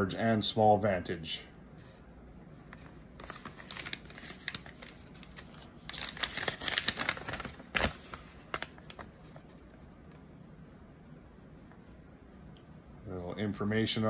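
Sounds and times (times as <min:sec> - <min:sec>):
paper crinkling and rustling: 0:01.8 - 0:10.2.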